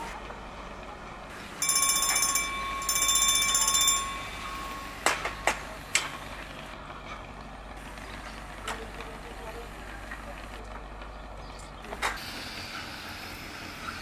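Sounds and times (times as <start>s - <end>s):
bell trilling: 1.6s - 5.5s
sharp metallic knocks: 1.6s - 6.2s.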